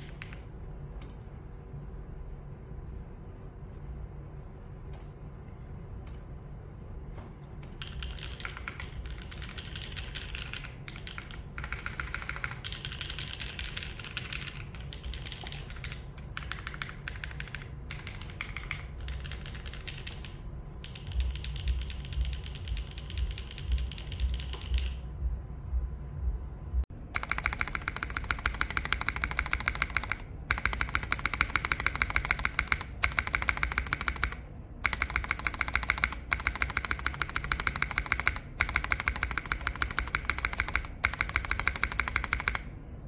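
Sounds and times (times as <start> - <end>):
mechanical keyboard typing: 7.6 - 25.0, 27.1 - 42.7.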